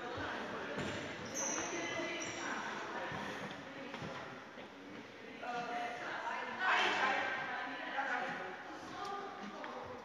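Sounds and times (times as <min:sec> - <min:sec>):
echoing indistinct voices: 0:00.0 - 0:10.0.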